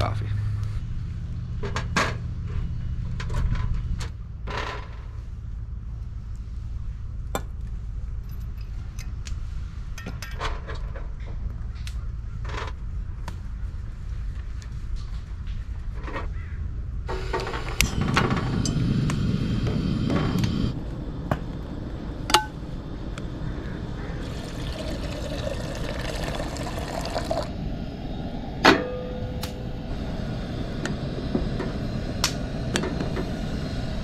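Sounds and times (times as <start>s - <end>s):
water pouring into pot: 24.2s - 27.5s.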